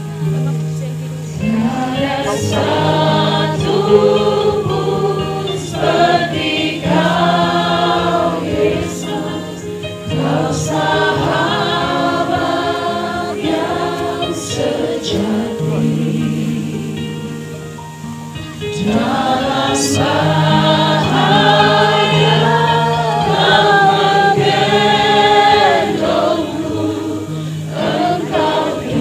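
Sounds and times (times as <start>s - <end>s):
choir singing a slow hymn: 0.0s - 29.0s.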